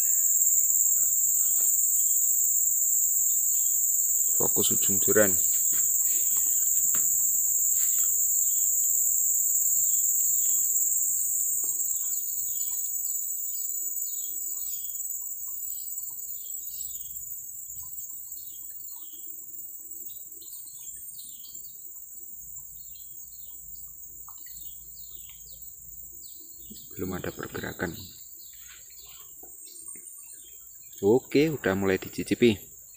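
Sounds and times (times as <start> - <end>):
high-pitched insect drone: 0.0 - 32.9
birds chirping: 3.2 - 8.6, 24.3 - 32.9.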